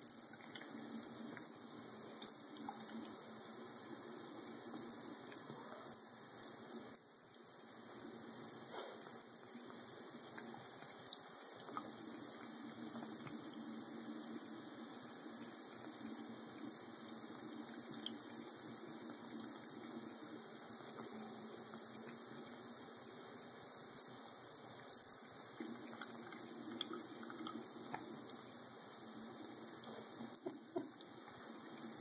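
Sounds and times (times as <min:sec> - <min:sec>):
faucet running into sink: 0:29.5 - 0:32.0.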